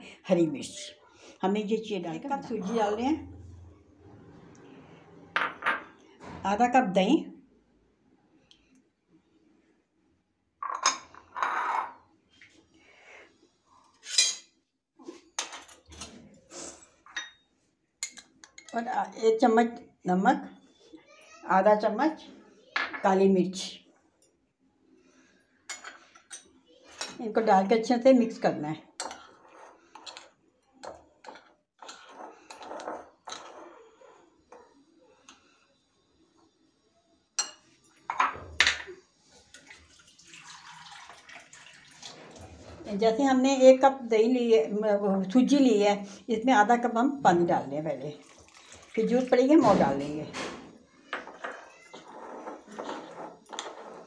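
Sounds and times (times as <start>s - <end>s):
glass bowls knocking and clinking: 10.6s - 12.0s, 37.4s - 39.0s
spoon scraping glass bowl: 11.3s - 12.0s, 29.0s - 30.3s, 31.2s - 34.2s, 51.2s - 54.0s.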